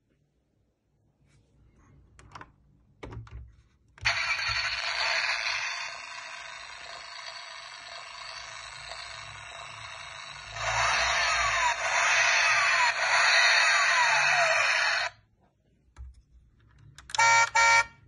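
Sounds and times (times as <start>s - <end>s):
tinny recorded engine sound: 4.0s - 15.2s.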